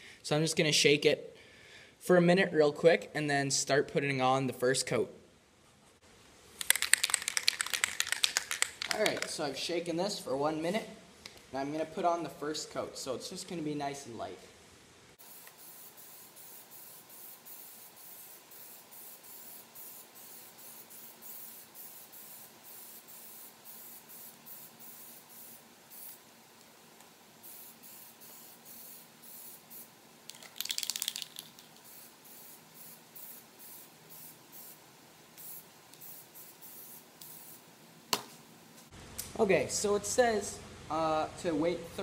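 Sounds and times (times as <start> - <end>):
aerosol can spraying hisses: 15.2 - 26.3, 27.4 - 37.7.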